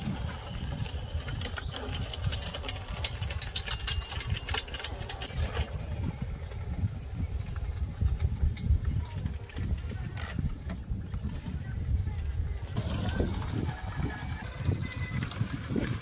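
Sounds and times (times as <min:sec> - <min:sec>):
sharp clicks and rattles: 0:00.1 - 0:16.0
mower low mechanical rumble: 0:11.6 - 0:16.0.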